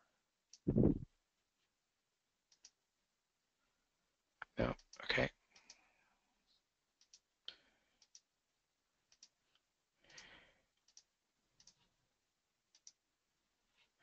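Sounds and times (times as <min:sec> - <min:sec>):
computer mouse clicks: 0:02.5 - 0:02.8, 0:04.8 - 0:05.8, 0:07.0 - 0:07.3, 0:08.0 - 0:08.3, 0:09.1 - 0:09.4, 0:10.0 - 0:11.8, 0:12.7 - 0:13.0.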